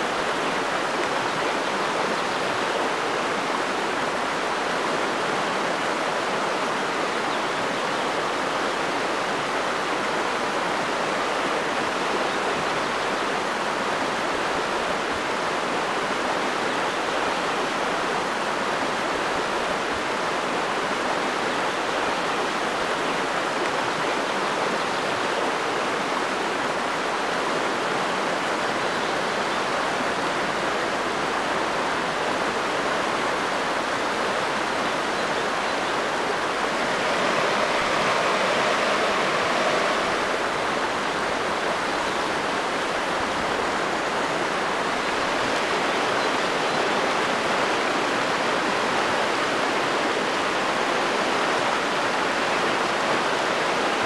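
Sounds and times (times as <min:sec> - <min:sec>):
river water rushing over rocks: 0:00.0 - 0:54.0.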